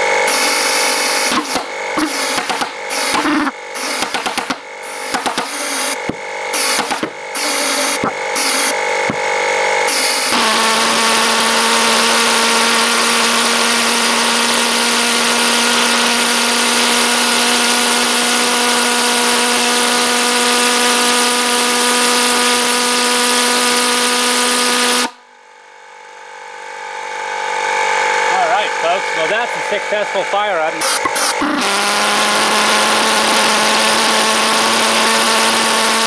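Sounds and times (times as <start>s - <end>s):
pulse jet engine droning: 0.0s - 13.6s, 25.1s - 35.6s.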